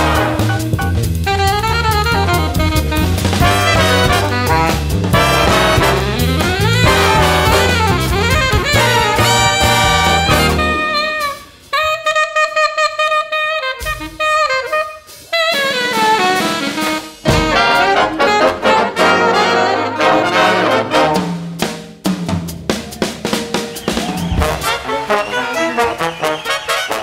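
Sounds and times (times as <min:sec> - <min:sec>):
alto saxophone solo: 0:00.0 - 0:21.2, 0:24.4 - 0:27.0
big band jazz: 0:00.0 - 0:27.0.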